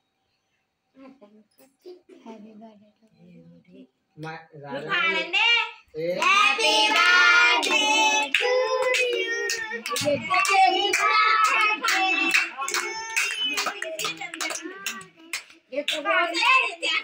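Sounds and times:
child singing: 0:06.2 - 0:17.0.

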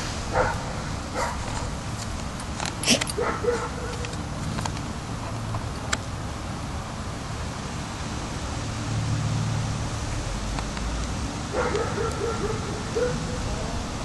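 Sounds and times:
dogs vocalizing: 0:11.6 - 0:13.8.

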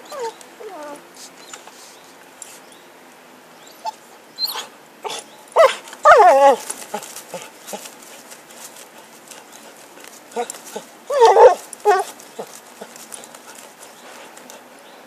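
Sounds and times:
dog whining: 0:00.0 - 0:01.0, 0:03.6 - 0:07.9, 0:10.3 - 0:14.0.

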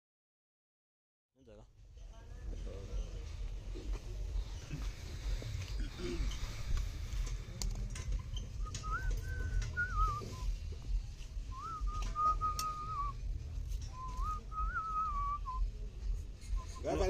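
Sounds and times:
low background rumble: 0:01.6 - 0:16.9
person whistling a tune: 0:08.6 - 0:10.6, 0:11.5 - 0:13.2, 0:13.9 - 0:15.7.

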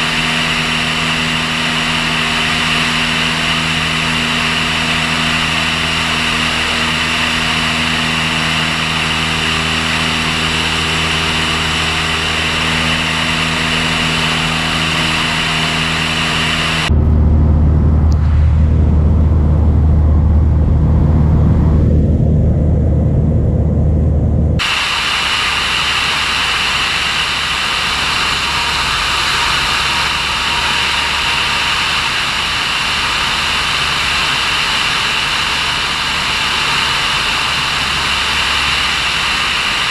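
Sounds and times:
light aircraft engine droning: 0:00.0 - 0:39.9
wind rushing over camera: 0:15.2 - 0:27.3.

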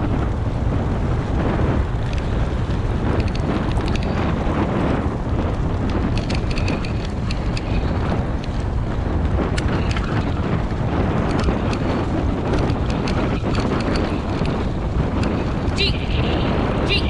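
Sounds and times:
bike tyres rolling over leaves: 0:00.0 - 0:16.9
wind rushing over microphone: 0:00.0 - 0:17.0
light clicks and rattles: 0:02.0 - 0:04.7, 0:05.4 - 0:16.2.

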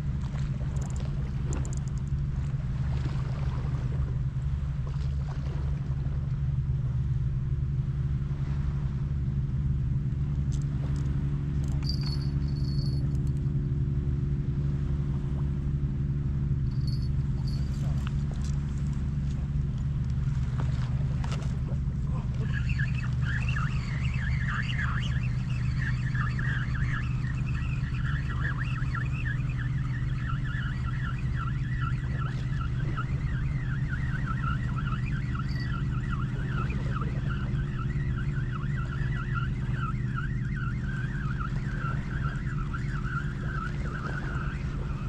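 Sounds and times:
steady low hum: 0:00.0 - 0:45.0
quick high chirps: 0:22.4 - 0:44.5.

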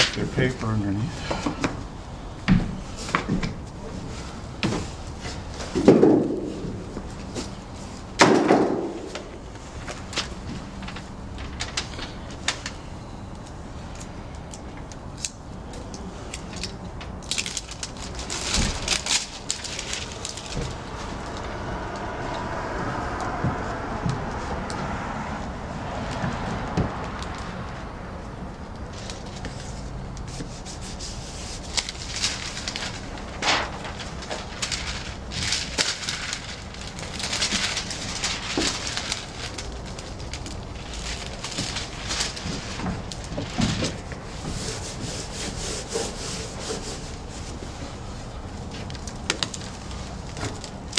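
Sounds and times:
plastic membrane crinkling: 0:15.1 - 0:23.8, 0:28.8 - 0:47.5, 0:48.1 - 0:50.9.

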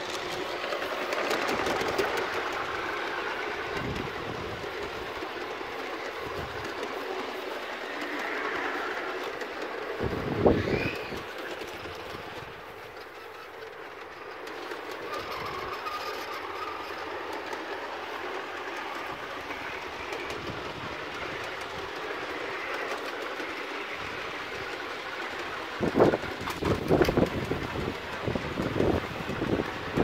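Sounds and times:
toy train motor whirring on rails: 0:00.0 - 0:30.0
wind buffeting microphone: 0:00.1 - 0:07.5, 0:09.8 - 0:13.0, 0:23.2 - 0:30.0.

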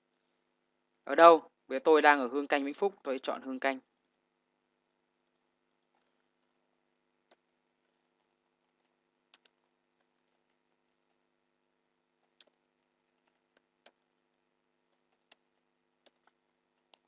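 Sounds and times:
faint steady hum: 0:00.0 - 0:17.0
computer keyboard keystrokes: 0:16.0 - 0:17.0.

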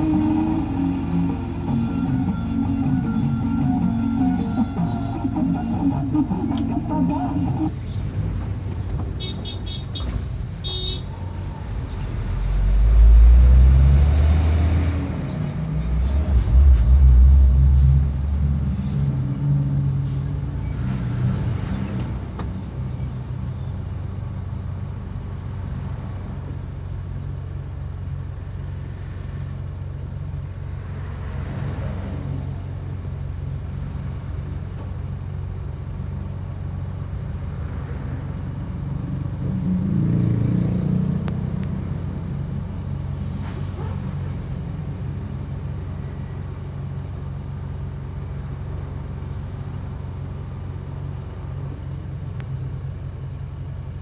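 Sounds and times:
loud low rumbling: 0:00.0 - 0:09.2, 0:11.2 - 0:20.0
engine and road rumble: 0:00.0 - 0:54.0.

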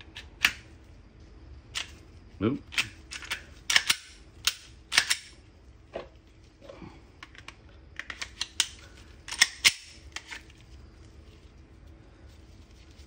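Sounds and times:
pistol slide clicking and clacking: 0:02.7 - 0:05.4, 0:08.0 - 0:10.3.

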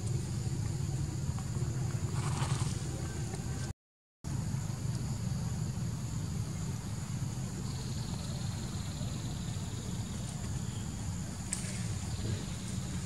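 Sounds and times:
insects buzzing: 0:04.3 - 0:13.0.

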